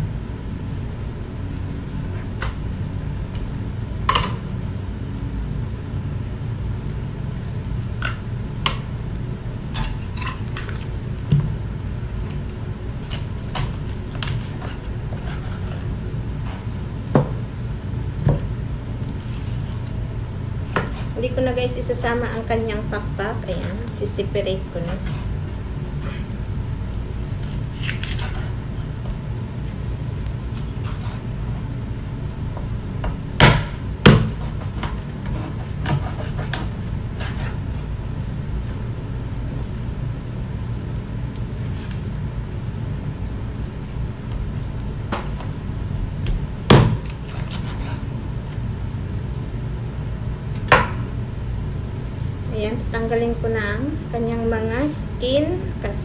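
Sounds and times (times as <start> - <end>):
steady low hum: 0.0 - 56.0
knife chopping on cutting board: 20.7 - 21.2, 33.0 - 37.6, 46.7 - 48.0.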